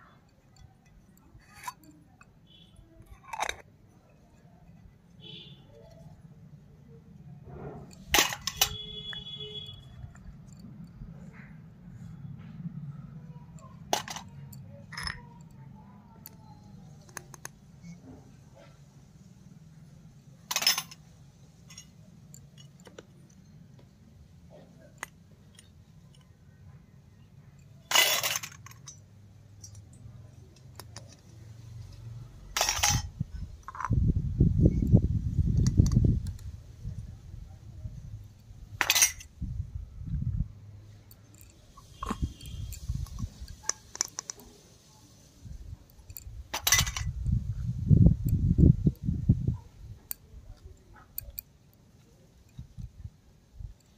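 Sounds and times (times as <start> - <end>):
metallic clinks of small pot: 0.0 - 6.2, 7.5 - 11.5, 12.8 - 18.0, 20.5 - 23.9, 24.5 - 34.0, 37.9 - 39.4, 40.9 - 44.6, 45.7 - 53.0
toy clattering on concrete: 0.0 - 18.8, 20.4 - 53.9
metal cup clattering on concrete: 0.4 - 3.7, 7.6 - 10.6, 13.6 - 15.5, 20.5 - 21.0, 27.8 - 29.0, 32.5 - 34.0, 38.8 - 39.3, 46.1 - 47.2
muffled handling rumble: 19.9 - 44.7, 45.4 - 51.4.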